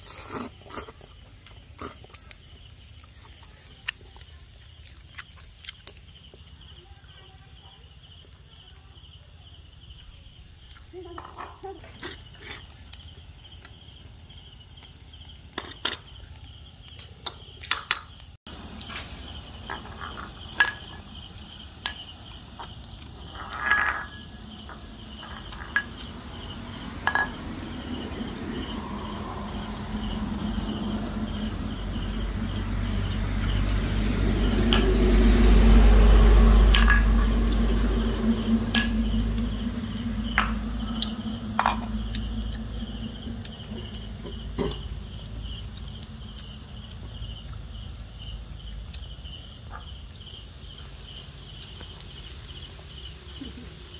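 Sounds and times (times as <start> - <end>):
insects chirping: 0.0 - 53.9
low rumble: 24.2 - 48.0.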